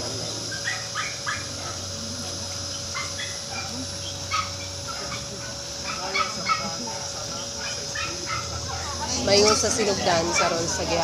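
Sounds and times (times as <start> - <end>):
dog yipping and barking: 0.5 - 1.8, 2.9 - 6.8, 7.6 - 10.7.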